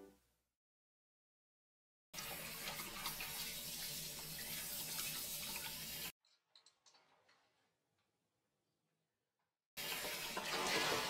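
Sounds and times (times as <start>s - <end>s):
sink sprayer water spraying: 2.2s - 6.2s, 9.8s - 11.0s.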